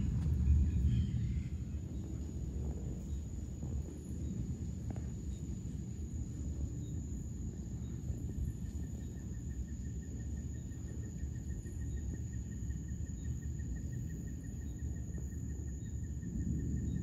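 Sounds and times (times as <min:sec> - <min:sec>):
steady low noise: 0:00.0 - 0:08.5
insect chirping: 0:00.0 - 0:17.0.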